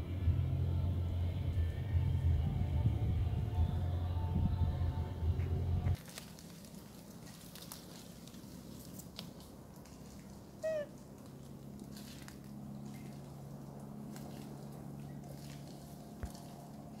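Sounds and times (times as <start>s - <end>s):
low steady hum: 0.0s - 17.0s
monkey squeak: 10.6s - 10.9s.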